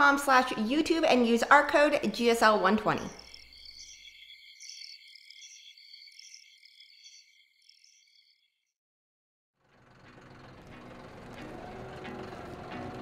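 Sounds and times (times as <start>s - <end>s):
crickets chirping: 1.7s - 8.6s.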